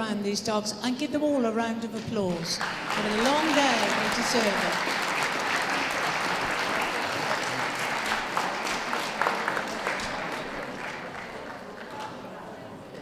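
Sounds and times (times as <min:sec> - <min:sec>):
audience applauding: 0:02.6 - 0:12.4.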